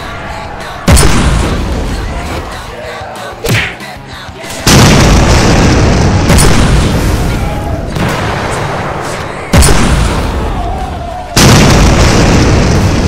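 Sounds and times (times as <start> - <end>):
boom sound effect: 0.9 - 1.9, 4.7 - 10.6, 11.4 - 13.0.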